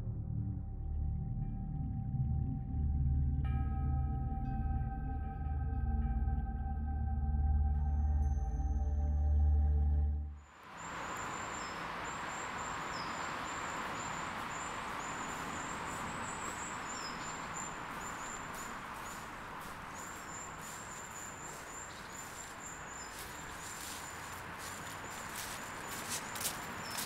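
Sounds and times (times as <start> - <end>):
small birds chirping: 10.6 - 27.0.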